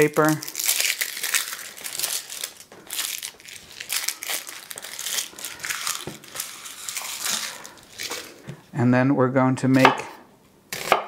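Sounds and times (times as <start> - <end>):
onion skin crackling: 0.0 - 8.5.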